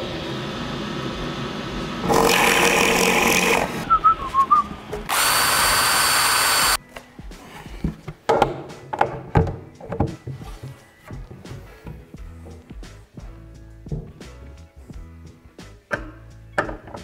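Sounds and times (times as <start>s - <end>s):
drill press boring into wood: 2.0s - 3.8s, 5.1s - 6.8s
cordless drill whining: 2.0s - 3.9s, 5.1s - 6.8s.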